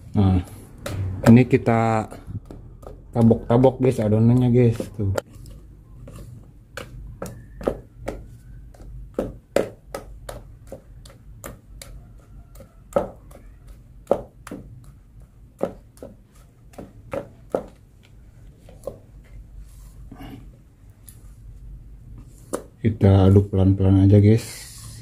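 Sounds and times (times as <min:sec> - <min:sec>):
spatula slapping wet batter: 0:00.6 - 0:19.4.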